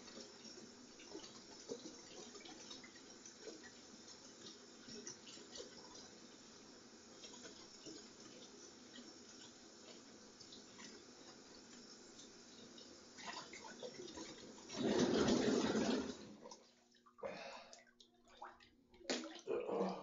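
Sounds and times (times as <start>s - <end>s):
small clicks and drips: 0.0s - 15.0s, 16.4s - 20.0s
bathtub water hiss: 0.0s - 16.4s
water sloshing in bathtub: 13.1s - 20.0s.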